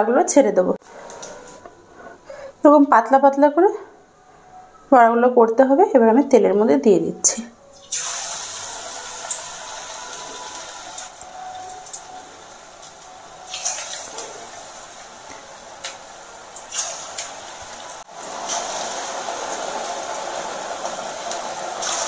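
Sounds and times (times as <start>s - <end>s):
fritters sizzling in oil: 7.7s - 22.0s
sharp oil crackles: 7.8s - 22.0s.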